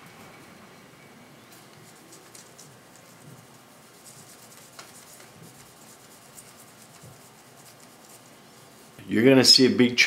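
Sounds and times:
scratchy handling noises: 1.5 - 9.0
cloth rubbing on wooden handle: 1.8 - 9.0.

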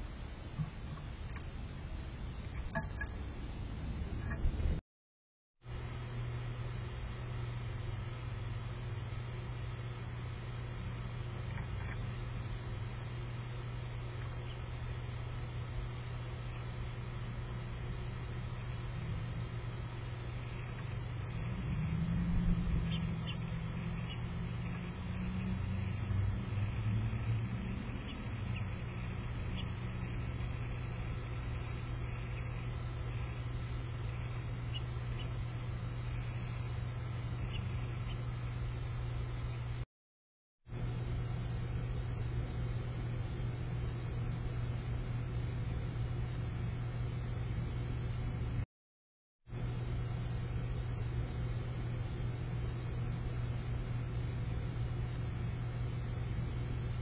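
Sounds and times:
low mechanical hum: 0.0 - 4.8, 5.6 - 39.8, 40.7 - 48.6, 49.5 - 57.0
faint bird chirps: 14.0 - 15.5, 18.0 - 38.7.

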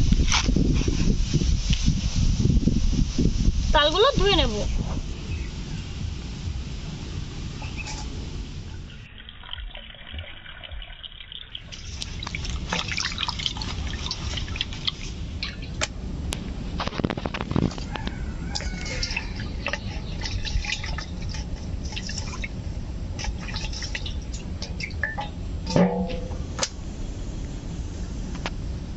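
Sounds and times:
water splashing: 8.7 - 15.9, 16.8 - 26.7
water dripping: 8.9 - 16.0, 17.9 - 26.8
steady wash of water: 11.6 - 16.8, 17.8 - 26.3.

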